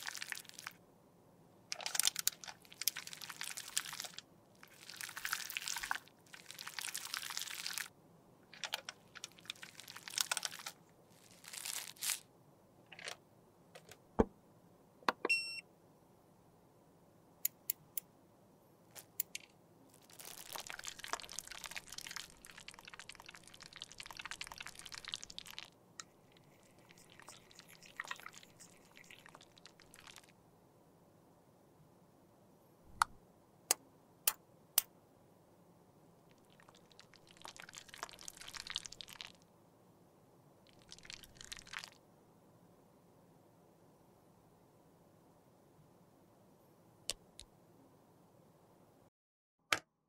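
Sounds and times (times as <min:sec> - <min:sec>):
plastic piping bag crinkling: 0:01.8 - 0:07.9, 0:08.5 - 0:12.2, 0:19.9 - 0:25.7.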